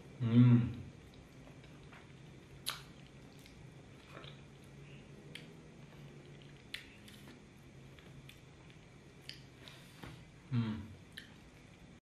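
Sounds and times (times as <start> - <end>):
low steady hum: 0.0 - 12.0
wet eating mouth sounds: 0.8 - 9.9.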